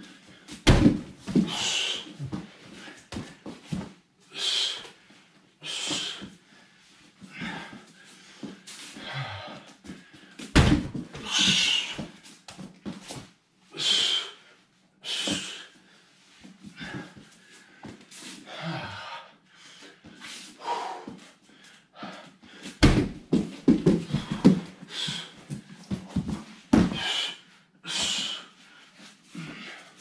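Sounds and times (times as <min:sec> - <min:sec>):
knocks and rustling on mats: 0:00.5 - 0:04.0, 0:09.9 - 0:13.3, 0:22.7 - 0:27.2
body thumping on floor mats: 0:00.6 - 0:01.6, 0:10.5 - 0:11.7, 0:22.8 - 0:24.8, 0:25.5 - 0:27.1.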